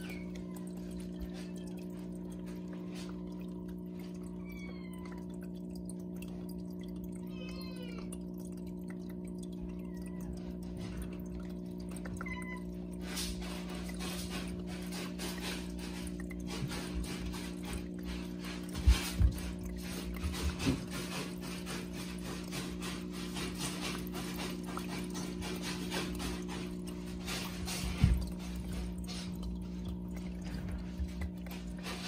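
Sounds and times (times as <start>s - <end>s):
kitten lapping water: 0.0s - 32.0s
water fountain pump humming: 0.0s - 32.0s
water trickling: 0.0s - 32.0s
cat mewing: 7.2s - 8.1s.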